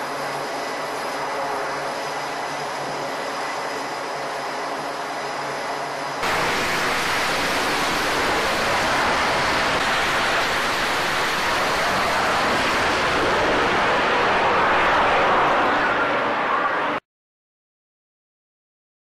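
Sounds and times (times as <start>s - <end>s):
jet engine roar: 0.0s - 17.0s
jet engine whine: 0.0s - 17.0s.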